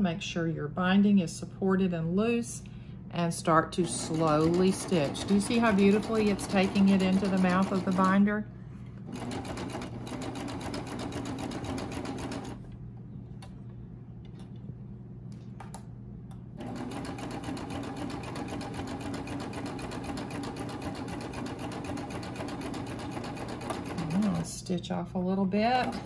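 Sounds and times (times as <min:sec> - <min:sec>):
serger sewing machine stitching: 0:03.8 - 0:08.2, 0:09.1 - 0:12.6, 0:16.6 - 0:24.5, 0:25.7 - 0:26.0.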